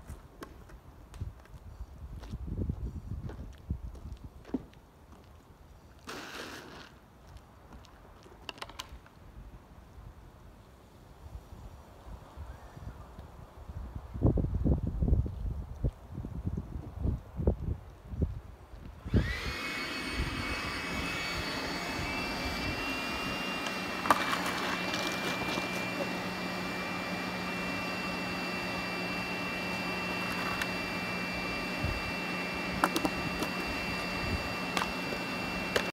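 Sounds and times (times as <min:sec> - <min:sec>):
machine motor whining: 0:19.0 - 0:35.9.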